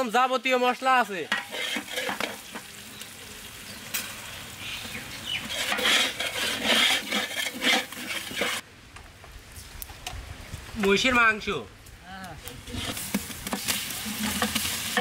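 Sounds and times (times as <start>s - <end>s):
oil sizzling in a pot: 0.6s - 8.6s, 12.6s - 15.0s
metal spatula scraping a pot: 1.3s - 2.7s, 5.4s - 8.6s, 12.7s - 15.0s.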